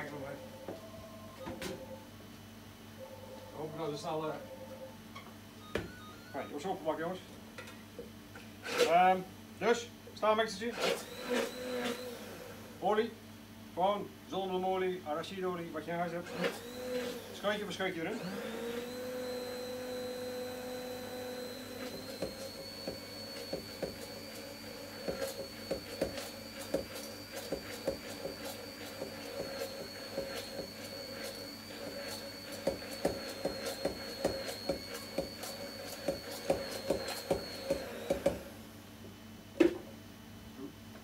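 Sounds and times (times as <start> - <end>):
immersion blender motor running: 10.7 - 12.8, 16.1 - 38.6.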